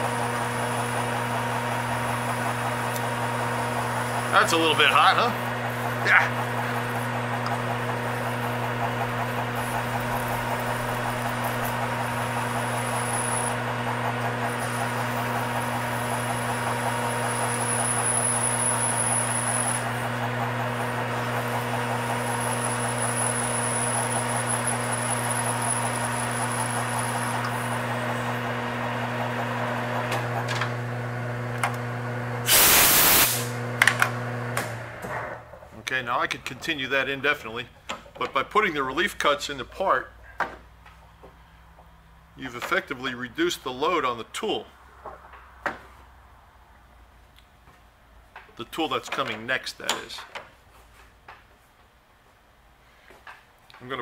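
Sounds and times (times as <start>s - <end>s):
tool cutting steel: 0.0s - 30.8s, 32.4s - 33.6s
lathe motor hum: 0.0s - 35.5s
high-pitched cutting whine: 4.0s - 28.4s
compressed air blast: 32.4s - 33.6s.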